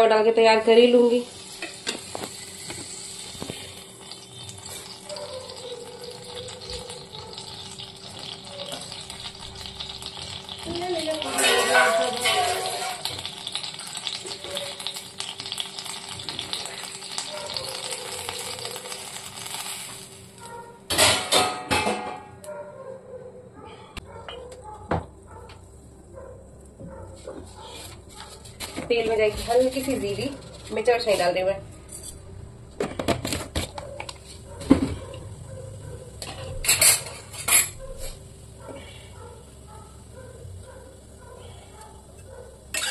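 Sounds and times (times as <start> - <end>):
water sizzling in hot pan: 0.8 - 20.5, 42.0 - 42.9
metal utensils clattering: 11.1 - 13.2, 20.9 - 22.3, 36.2 - 38.2.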